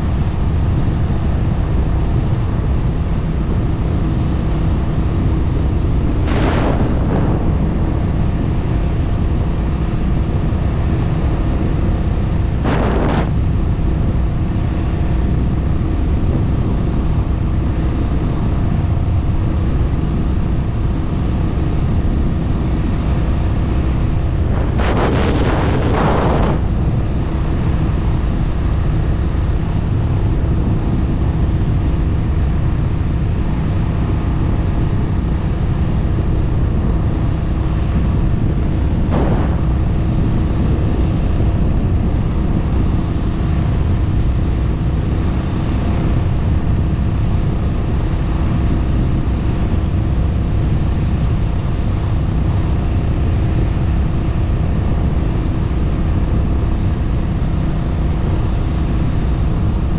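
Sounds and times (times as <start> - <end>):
wind rush on microphone: 0.0 - 59.9.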